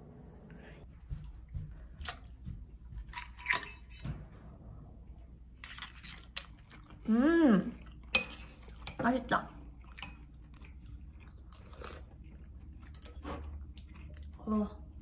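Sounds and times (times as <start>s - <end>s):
metal utensils clinking on bowls: 8.1s - 9.2s, 9.8s - 10.4s
chewing: 9.6s - 14.9s.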